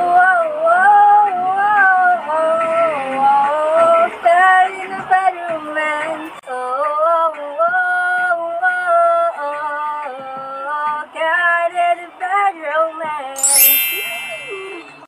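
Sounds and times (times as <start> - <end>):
bright high ringing: 13.4 - 15.0.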